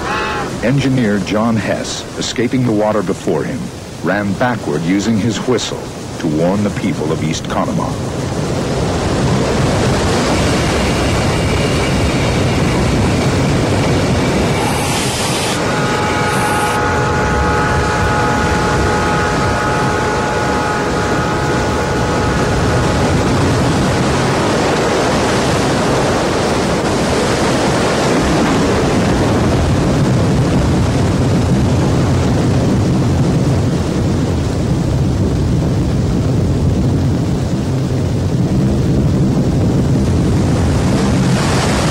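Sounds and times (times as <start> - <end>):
steam locomotive whistle: 0.0 - 0.7, 14.4 - 24.6
floodwater rushing: 0.0 - 32.4, 40.1 - 41.9.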